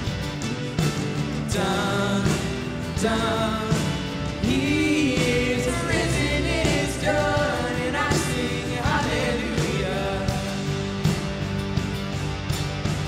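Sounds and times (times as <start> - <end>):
band with drums: 0.0 - 13.0
people singing: 1.5 - 11.2.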